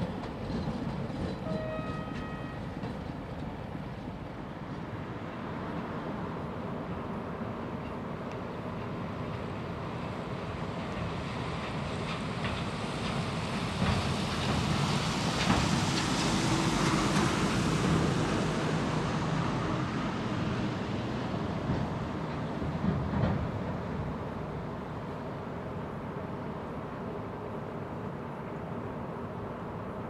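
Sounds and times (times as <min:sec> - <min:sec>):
distant freight train rumble: 0:00.0 - 0:30.0.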